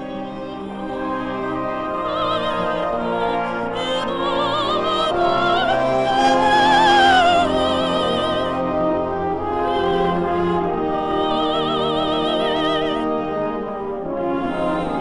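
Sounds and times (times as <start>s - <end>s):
woman singing with vibrato: 0.0s - 13.2s, 14.2s - 15.0s
orchestral backing: 0.0s - 15.0s.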